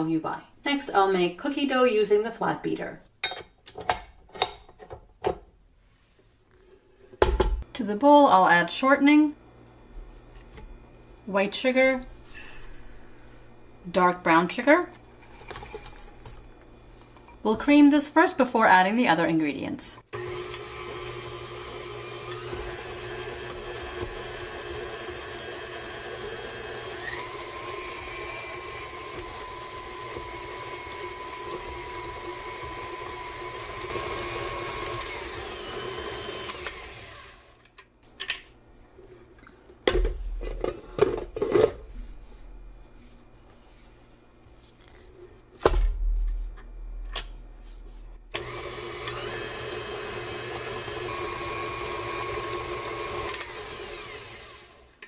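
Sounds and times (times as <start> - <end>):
stand mixer motor whine: 20.2 - 37.6, 48.3 - 55.0.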